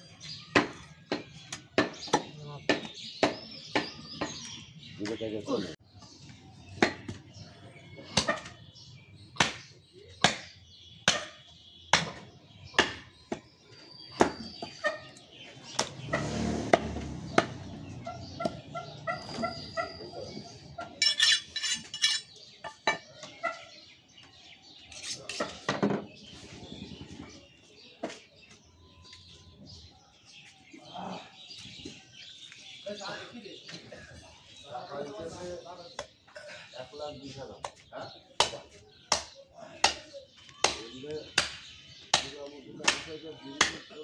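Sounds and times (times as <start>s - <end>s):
birds calling: 0.0s - 44.0s
cleaver chopping meat on wood block: 0.5s - 4.3s, 6.8s - 7.2s, 9.3s - 14.8s, 16.7s - 17.8s, 38.4s - 43.9s.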